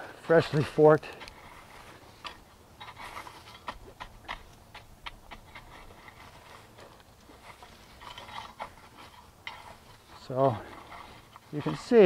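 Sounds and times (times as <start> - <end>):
rake scraping dry soil: 0.2 - 12.0.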